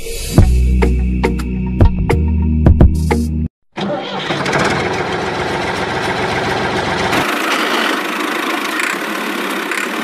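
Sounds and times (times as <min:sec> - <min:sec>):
tractor engine idling: 0:03.8 - 0:10.0.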